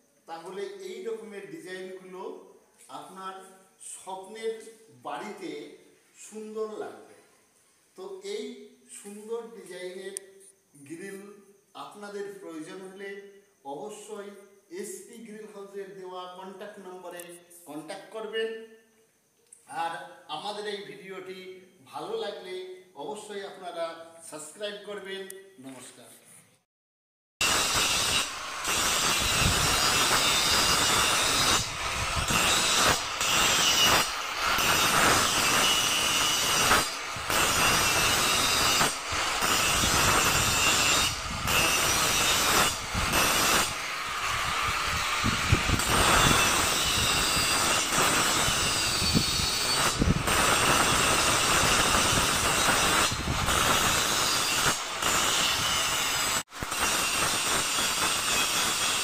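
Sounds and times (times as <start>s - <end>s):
angle grinder grinding metal: 27.4s - 59.0s.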